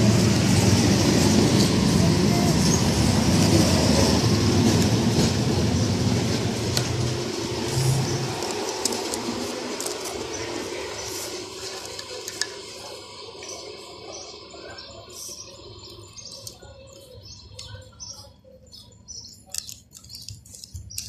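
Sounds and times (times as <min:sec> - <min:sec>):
faint outdoor background noise: 0:00.0 - 0:21.0
sharp high-pitched ticks: 0:14.6 - 0:21.0.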